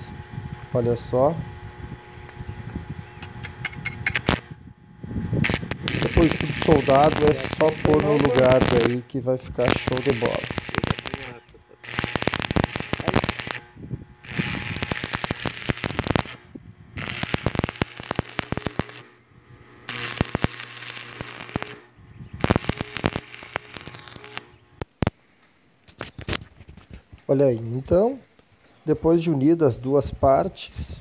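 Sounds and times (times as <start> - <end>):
low hum: 0.0 - 25.2
welding arc crackling: 3.2 - 25.2.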